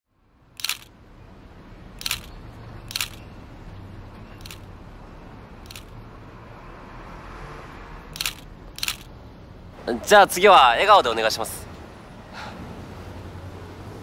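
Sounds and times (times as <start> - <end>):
camera shutter clicks: 0.6 - 0.9, 2.0 - 2.3, 2.9 - 3.2, 8.2 - 9.1.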